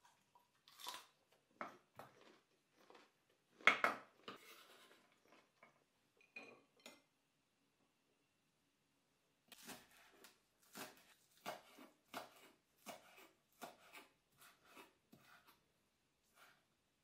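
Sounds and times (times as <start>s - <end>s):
knife slicing on wooden board: 9.5s - 15.6s.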